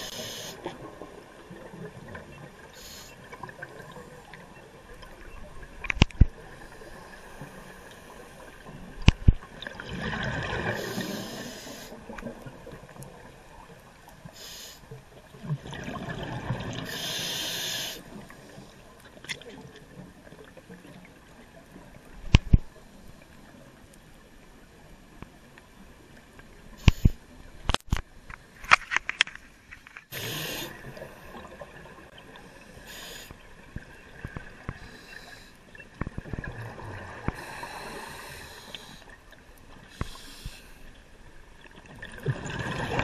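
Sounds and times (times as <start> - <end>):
regulator hiss: 0.0 - 0.6, 10.8 - 12.0, 14.4 - 14.8, 16.9 - 18.1, 30.1 - 30.8, 32.8 - 33.4
exhaled bubbles rushing underwater: 8.6 - 11.4, 15.3 - 17.0, 41.8 - 43.0.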